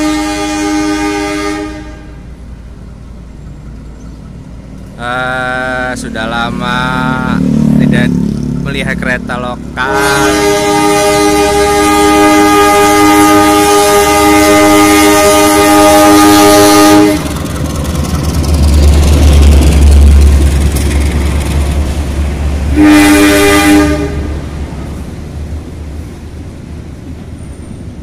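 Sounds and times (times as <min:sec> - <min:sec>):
locomotive horn blast: 0:00.0 - 0:02.3, 0:09.8 - 0:17.4, 0:22.6 - 0:24.6
locomotive engine deep rumble: 0:00.0 - 0:28.0
train coaches running by: 0:00.0 - 0:28.0.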